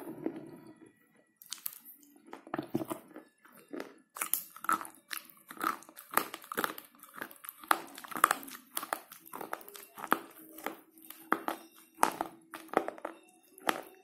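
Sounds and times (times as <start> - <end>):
pencil being chewed with crunches: 1.4 - 14.0.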